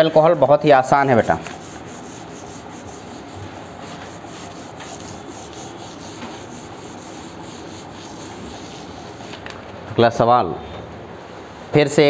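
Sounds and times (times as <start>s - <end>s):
cloth wiping whiteboard: 1.0s - 9.5s.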